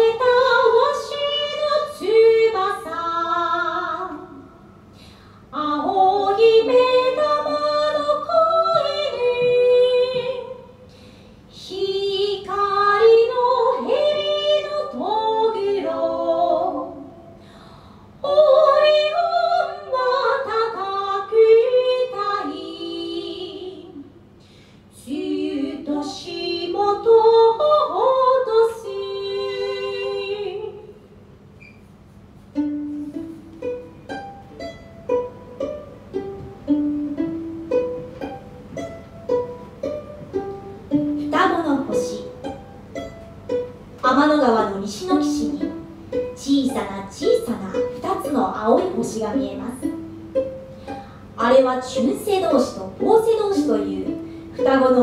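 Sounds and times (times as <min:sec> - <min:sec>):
woman singing unaccompanied: 0:00.0 - 0:04.5, 0:05.5 - 0:10.8, 0:11.5 - 0:17.2, 0:18.2 - 0:24.1, 0:24.9 - 0:31.0, 0:41.0 - 0:42.4, 0:44.0 - 0:50.0, 0:51.4 - 0:55.0
plucked string notes: 0:32.5 - 0:55.0.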